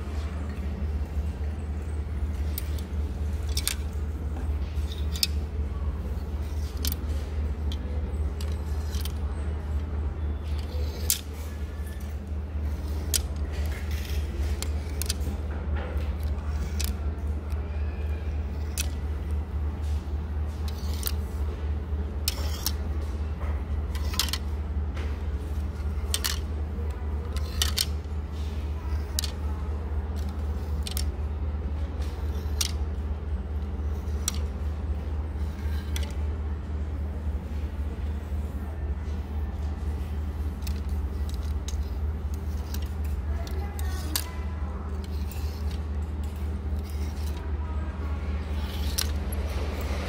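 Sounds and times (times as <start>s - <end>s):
steady low hum: 0.0s - 50.0s
plastic hangers clicking on metal rack: 2.3s - 5.6s, 6.2s - 17.6s, 18.4s - 21.5s, 22.1s - 24.6s, 25.4s - 31.3s, 31.9s - 36.2s, 39.1s - 47.6s, 48.4s - 50.0s.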